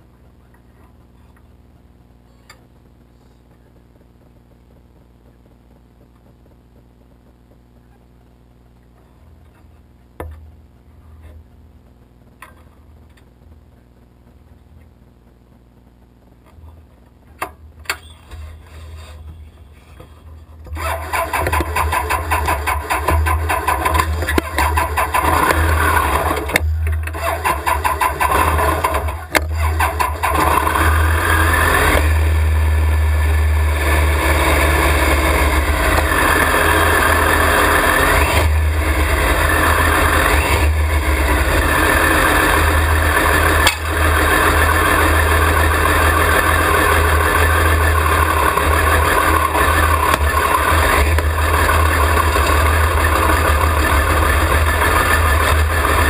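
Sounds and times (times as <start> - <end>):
go-kart driving off: 20.7 - 56.0
go-kart engine revving: 20.7 - 56.0.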